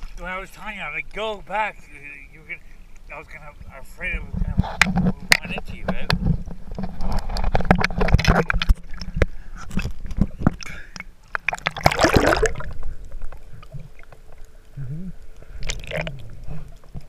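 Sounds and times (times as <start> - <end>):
water splashing against camera: 2.5 - 17.0
water slapping on camera housing: 4.3 - 12.8
bubbly splashing: 7.4 - 14.2, 15.5 - 16.5.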